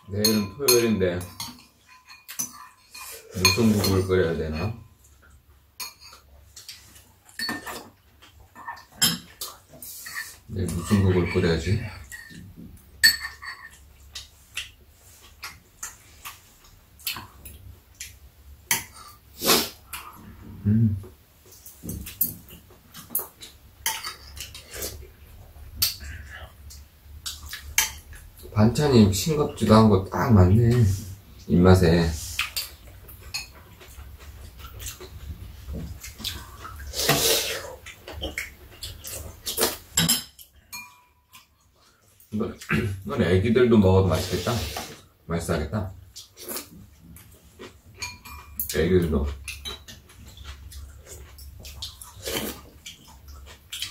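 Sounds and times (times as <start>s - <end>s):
utensils clinking against ceramic bowls: 0.1s - 4.8s, 7.3s - 7.9s, 10.0s - 12.4s, 13.0s - 14.2s, 32.5s - 33.9s, 40.0s - 41.5s, 48.0s - 50.0s
eating noises: 49.2s - 53.9s.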